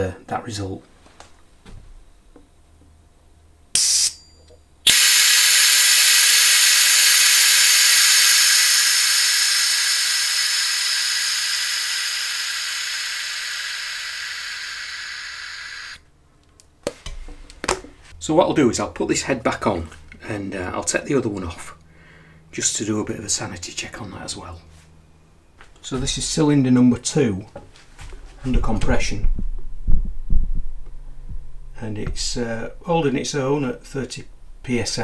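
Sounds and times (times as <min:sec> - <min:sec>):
compressed air hissing: 0:03.8 - 0:04.2, 0:04.9 - 0:16.0.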